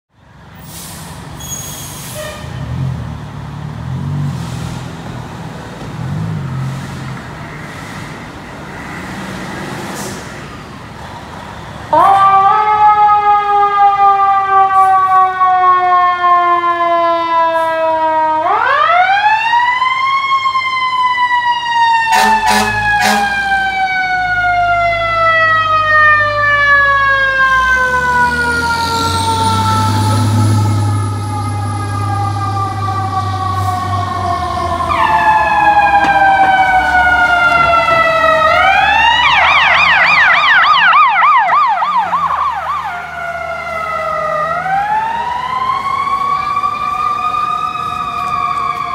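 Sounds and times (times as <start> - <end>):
truck engine: 0.2 - 12.5, 22.0 - 48.9
short horn blasts: 2.0 - 2.8, 22.1 - 23.5
fire truck siren wailing: 4.9 - 48.9
fast warbling siren: 12.0 - 48.9.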